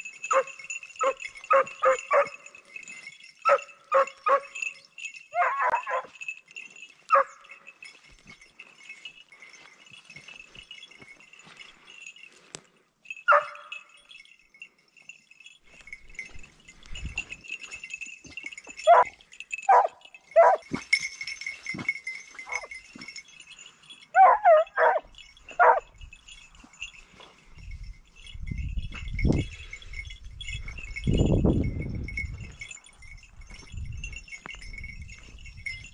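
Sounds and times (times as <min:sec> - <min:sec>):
hounds barking: 0:00.3 - 0:02.5, 0:03.4 - 0:04.6, 0:05.3 - 0:06.2, 0:07.1 - 0:07.5, 0:13.3 - 0:13.8, 0:18.8 - 0:20.7, 0:22.4 - 0:22.7, 0:24.1 - 0:25.9.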